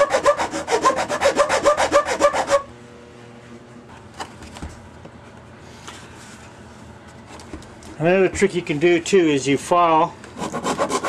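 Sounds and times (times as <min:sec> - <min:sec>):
hand file rasping on plastic: 0:00.0 - 0:02.6, 0:10.4 - 0:11.0.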